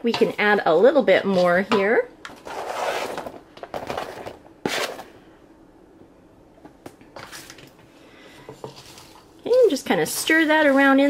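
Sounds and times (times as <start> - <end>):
knife scraping cutting board: 4.6 - 5.0.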